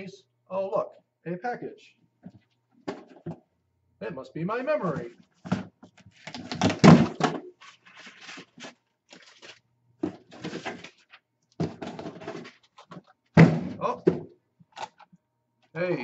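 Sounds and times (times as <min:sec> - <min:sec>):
cardboard box scraping and rustling: 0:07.6 - 0:09.6.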